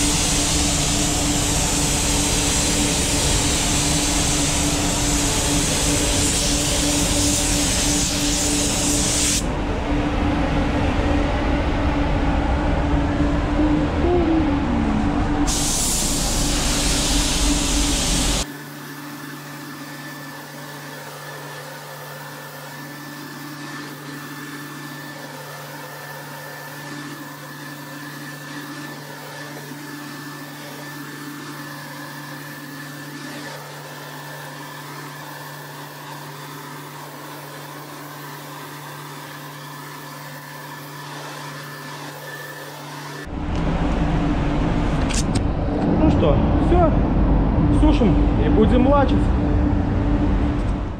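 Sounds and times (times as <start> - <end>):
paint spray gun hissing: 0.0 - 9.4, 15.5 - 18.5
ventilation humming: 0.0 - 18.5, 42.9 - 50.9.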